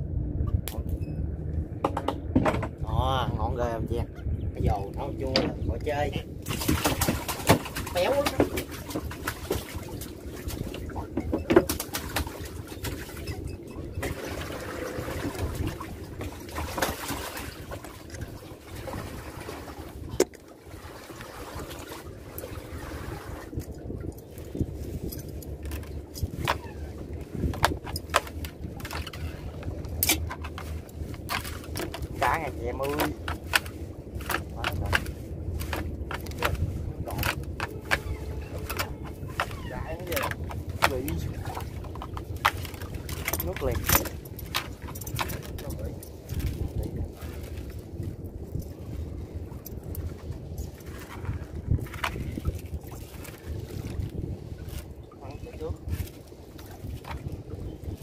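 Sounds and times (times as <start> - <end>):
low steady rumble: 0.0 - 58.0
knocks and clatter: 1.7 - 2.9, 6.4 - 18.0, 25.0 - 46.8
water dripping and splashing: 6.4 - 58.0
net clicking and knocking: 27.5 - 32.2, 32.9 - 41.1.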